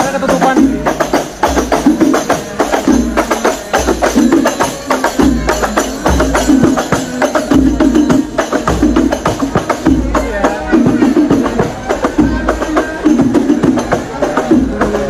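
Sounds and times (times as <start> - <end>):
frame drums played by hand: 0.0 - 15.0.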